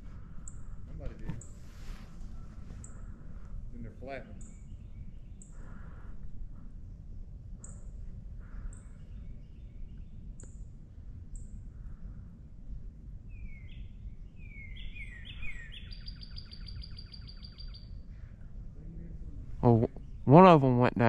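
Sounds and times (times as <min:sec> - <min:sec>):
songbirds singing: 0:00.0 - 0:21.0
wind rumble on microphone: 0:00.0 - 0:21.0
microphone handling noise: 0:00.8 - 0:02.9.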